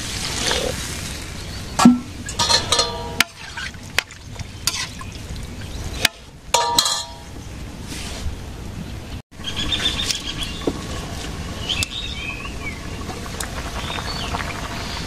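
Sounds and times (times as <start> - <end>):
short metallic rings: 1.8 - 3.2.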